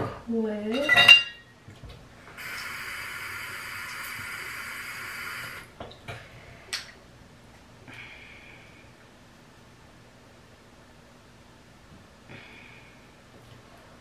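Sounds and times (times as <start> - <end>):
sink tap running: 2.4 - 5.7.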